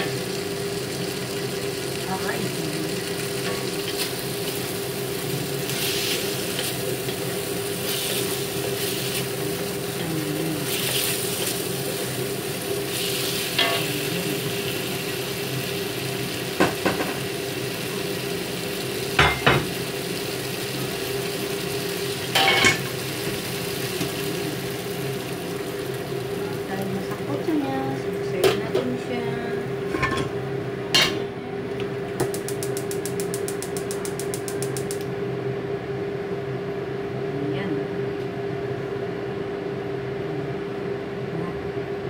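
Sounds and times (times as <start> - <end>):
meat sizzling in a wok: 0.0 - 28.6, 32.2 - 35.0
steady hum: 0.0 - 42.0.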